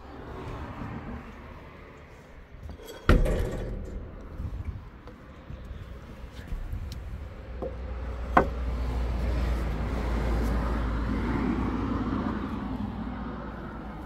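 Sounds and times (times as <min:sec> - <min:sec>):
vehicle passing by: 0:00.0 - 0:02.5, 0:07.9 - 0:14.0.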